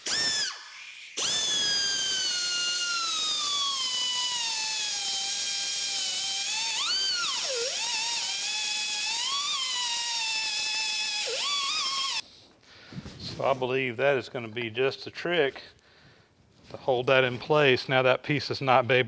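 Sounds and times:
air die grinder whining: 0.0 - 12.2.

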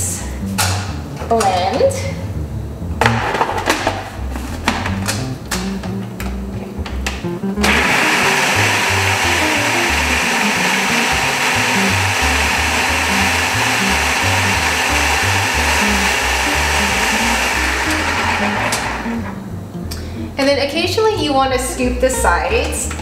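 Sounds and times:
background music: 0.0 - 23.0
food processor blending: 7.6 - 19.4.

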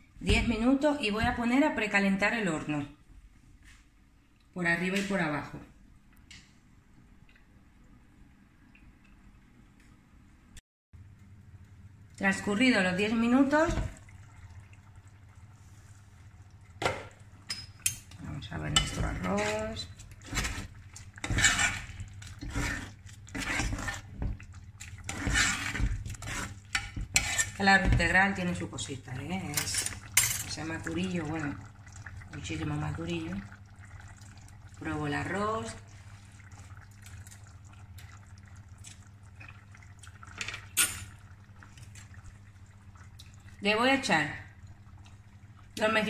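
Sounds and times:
pot simmering with bubbles popping: 11.0 - 46.0
spoon stirring rice in a pot: 18.7 - 28.4.

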